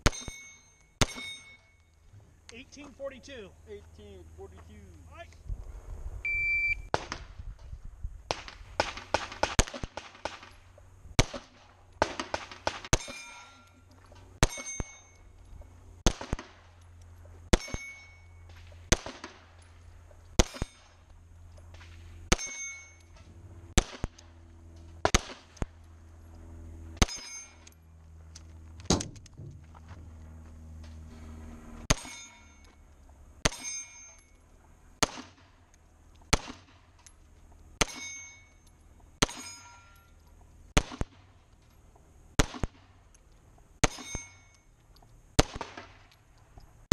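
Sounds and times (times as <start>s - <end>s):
metallic ring of steel plate: 0.0s - 1.9s, 12.9s - 15.4s, 17.5s - 18.5s, 22.3s - 23.3s, 27.0s - 27.8s, 31.9s - 34.5s, 37.8s - 40.2s, 43.8s - 44.8s
pistol shots: 1.0s - 1.5s, 8.3s - 10.6s, 11.2s - 13.3s, 16.0s - 16.7s, 18.5s - 19.6s, 20.4s - 20.9s, 23.7s - 24.3s, 25.0s - 25.7s, 35.0s - 35.6s, 36.3s - 36.8s, 40.8s - 41.4s, 42.4s - 43.0s, 43.8s - 44.3s, 45.4s - 46.2s.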